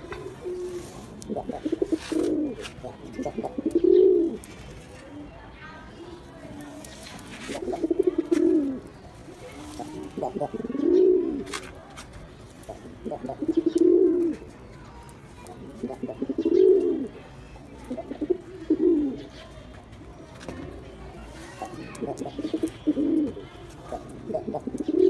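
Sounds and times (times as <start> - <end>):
pigeon cooing: 0.0 - 4.5, 7.5 - 11.5, 13.0 - 14.4, 15.6 - 17.1, 17.9 - 19.3, 21.9 - 25.0.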